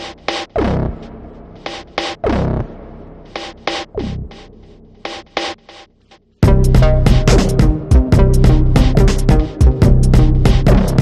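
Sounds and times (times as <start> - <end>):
electronic bass music: 6.4 - 11.0.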